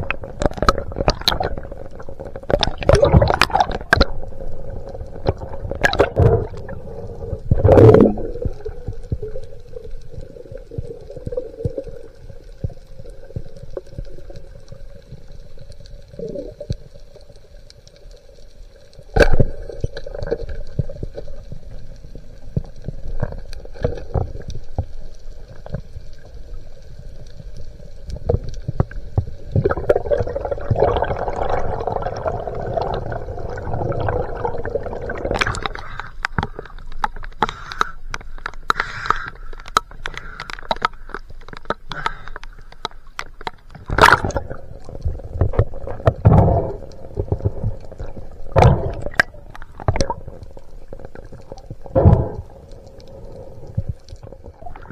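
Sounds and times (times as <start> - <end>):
underwater bubbling: 0.0 - 54.9.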